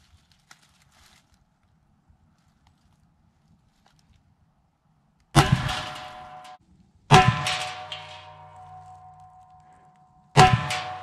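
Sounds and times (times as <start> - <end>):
rifle shots: 5.4 - 6.5
metallic ringing: 5.4 - 9.8, 10.4 - 11.0.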